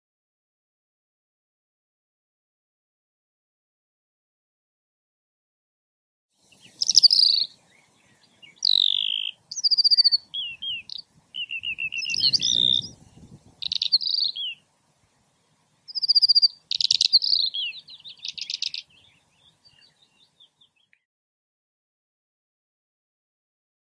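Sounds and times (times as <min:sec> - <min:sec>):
bird singing: 0:06.4 - 0:14.6, 0:15.9 - 0:21.0.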